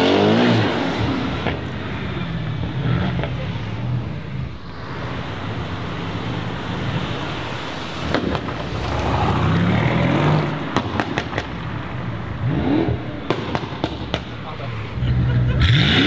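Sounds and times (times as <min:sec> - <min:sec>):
car exhaust rumble revving: 0:00.0 - 0:16.0
exhaust pops and crackles: 0:02.6 - 0:03.6, 0:08.0 - 0:12.0, 0:12.6 - 0:14.7.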